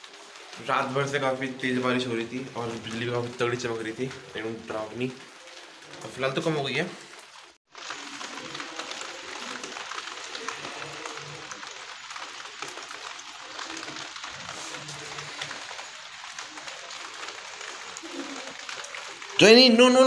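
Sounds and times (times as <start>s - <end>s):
rain on concrete rooftop: 0.0s - 20.0s.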